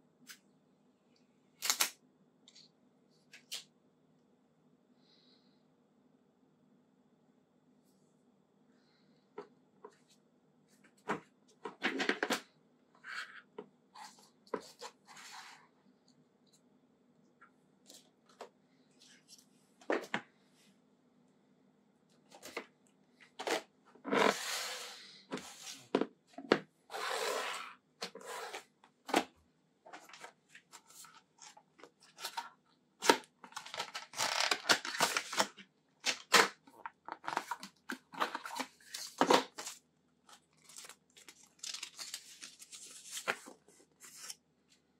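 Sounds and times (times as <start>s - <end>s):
rustling and tearing paper: 40.4s - 44.4s.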